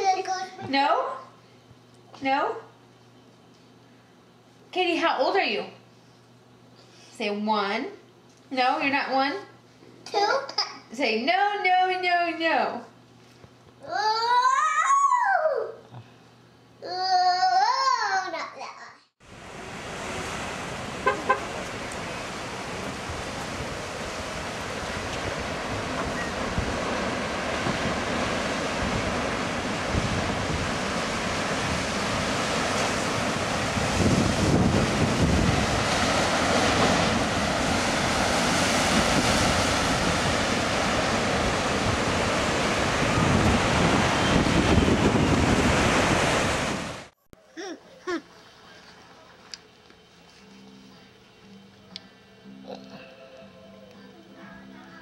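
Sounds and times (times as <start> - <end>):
ocean surf breaking on rocks: 19.2 - 47.1.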